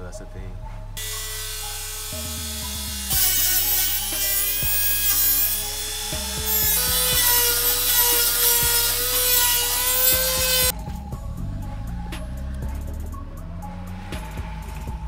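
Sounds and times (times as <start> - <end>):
rotary tool grinding metal bolt: 2.9 - 10.7.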